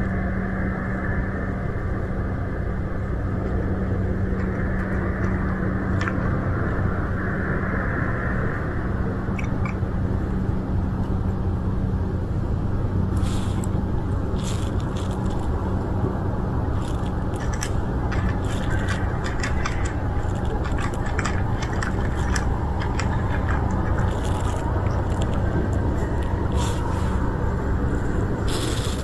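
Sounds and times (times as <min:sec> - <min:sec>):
steady low hum: 0:00.0 - 0:29.0
cat crunching dry kibble: 0:04.1 - 0:06.4, 0:09.4 - 0:09.8, 0:13.0 - 0:29.0.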